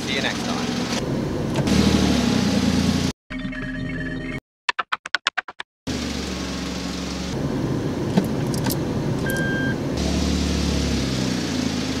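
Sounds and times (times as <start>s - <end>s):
car engine running: 0.0s - 3.1s, 5.9s - 12.0s
short high-pitched beep: 9.3s - 9.8s.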